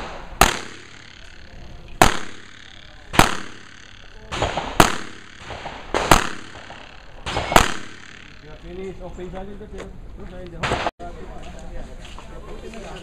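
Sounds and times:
revolver shots with echo: 0:00.0 - 0:08.8.

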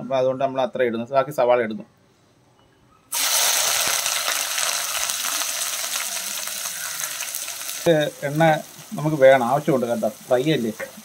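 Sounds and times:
onions sizzling in hot oil: 0:03.1 - 0:11.0.

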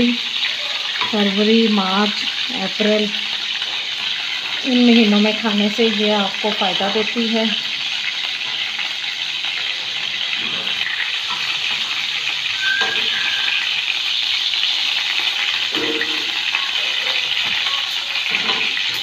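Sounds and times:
fish sizzling in a wok: 0:00.0 - 0:19.0.

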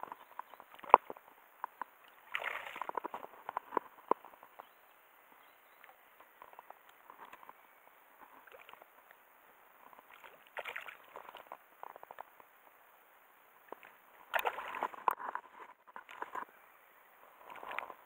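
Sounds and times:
small knocks and clicks: 0:00.0 - 0:02.0
water splashing and sloshing: 0:00.0 - 0:04.6, 0:05.8 - 0:09.2, 0:09.8 - 0:12.5, 0:13.6 - 0:16.5, 0:17.3 - 0:18.0.

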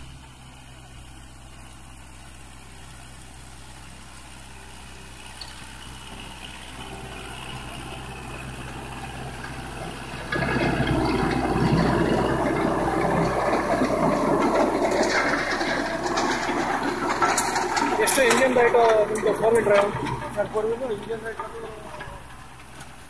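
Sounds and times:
tractor diesel engine running: 0:00.0 - 0:23.0
rotary tiller churning: 0:06.8 - 0:23.0.

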